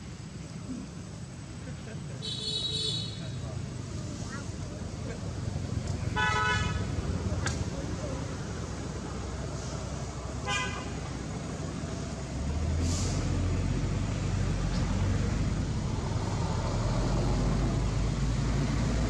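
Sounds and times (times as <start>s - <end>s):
engine low rumble: 3.1s - 19.0s
short hiss: 12.8s - 13.6s.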